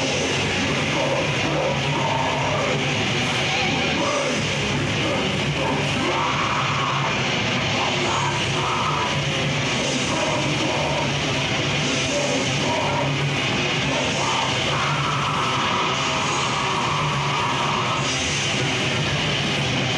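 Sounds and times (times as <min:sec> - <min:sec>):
distorted electric guitars: 0:00.0 - 0:19.9
drum kit: 0:00.0 - 0:19.9.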